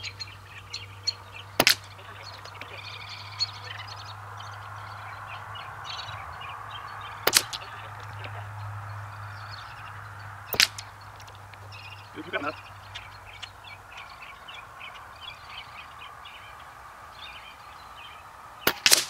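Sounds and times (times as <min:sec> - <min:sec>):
birds calling: 0:00.0 - 0:19.0
air rifle shots: 0:01.6 - 0:02.8, 0:07.2 - 0:08.4, 0:10.5 - 0:11.4, 0:18.6 - 0:19.0.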